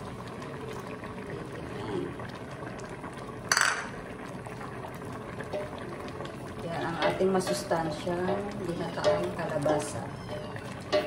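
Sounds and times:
stew simmering and bubbling: 0.0s - 11.0s.

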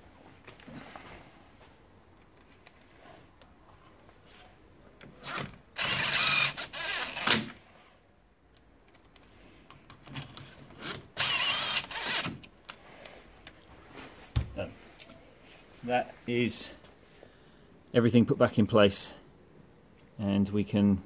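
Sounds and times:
impact driver driving screws: 5.2s - 7.6s, 10.8s - 12.5s.

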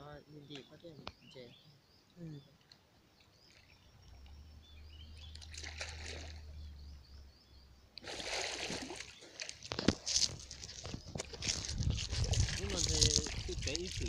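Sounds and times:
faint bird chirps: 0.0s - 9.5s
water splashing and sloshing: 5.2s - 6.6s, 8.0s - 14.0s.

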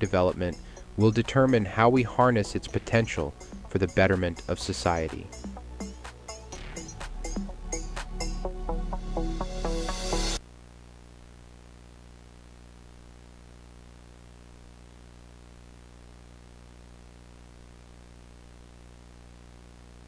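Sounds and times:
low electrical hum: 0.0s - 5.4s, 10.4s - 20.0s.

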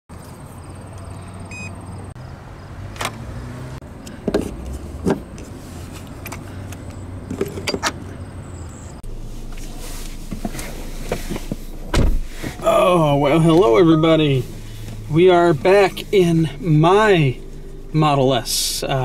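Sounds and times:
steady low hum: 9.0s - 19.0s.

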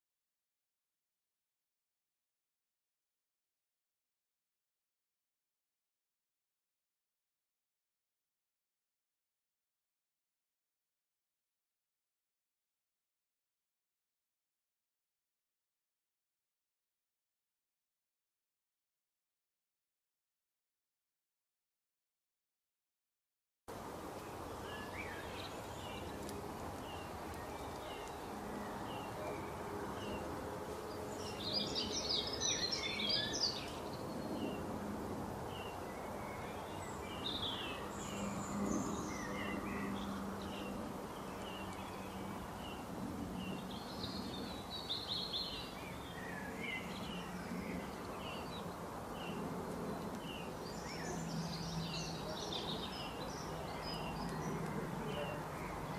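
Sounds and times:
songbirds chirping and singing: 24.0s - 34.8s, 35.4s - 55.9s.

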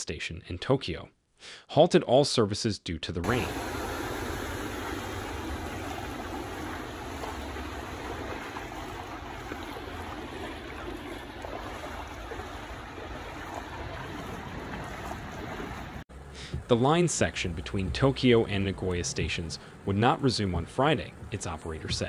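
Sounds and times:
rushing floodwater and rain: 3.2s - 16.0s.

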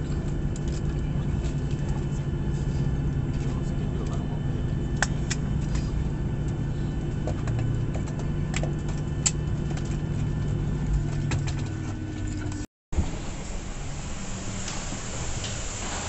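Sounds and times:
aircraft cabin hum: 0.0s - 16.0s.

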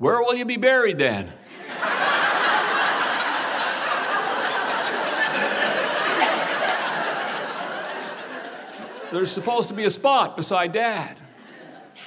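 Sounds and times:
audience laughing: 1.5s - 10.0s, 11.2s - 12.0s.

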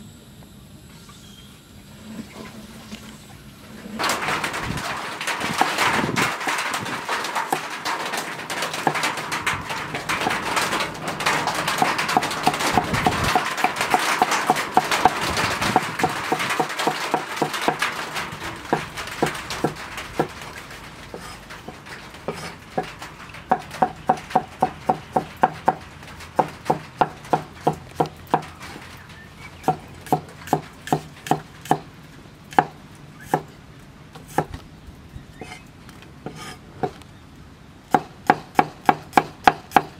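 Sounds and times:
cleaver chopping on wooden block: 37.9s - 39.9s.

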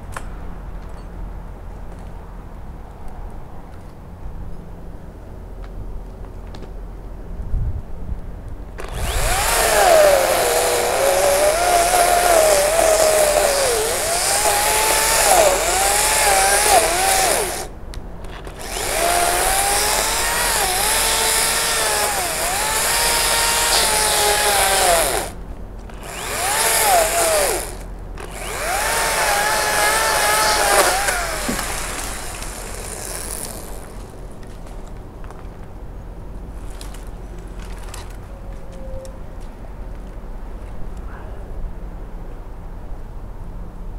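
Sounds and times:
battery chainsaw cutting wood: 8.8s - 17.7s, 18.5s - 34.2s.

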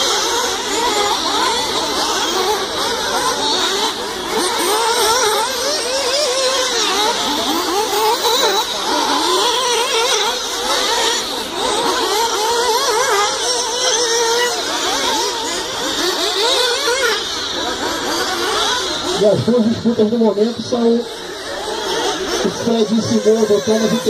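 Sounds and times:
rc car engines whining: 0.0s - 24.0s.

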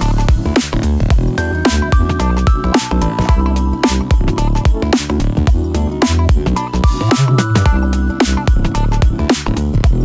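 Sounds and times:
electronic music with heavy bass: 0.0s - 10.0s.

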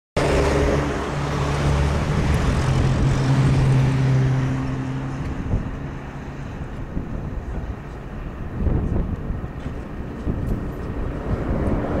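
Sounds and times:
road noise: 0.2s - 12.0s
vehicle engine hum: 0.2s - 12.0s.

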